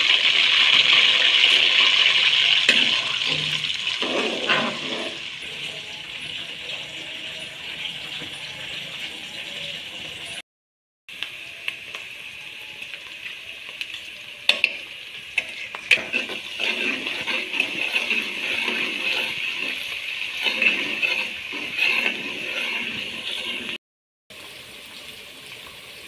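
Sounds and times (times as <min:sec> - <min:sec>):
onions sizzling in hot oil: 0:00.0 - 0:10.4, 0:11.1 - 0:26.0
ladle scraping a metal pan: 0:00.6 - 0:09.4, 0:15.4 - 0:23.8.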